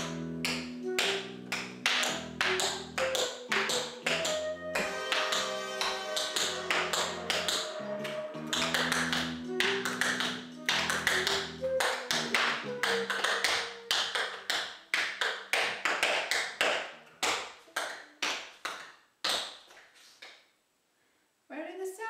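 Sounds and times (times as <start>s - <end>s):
backing music: 0.0s - 14.5s
tap shoes on tap board: 0.5s - 7.7s, 8.5s - 19.7s.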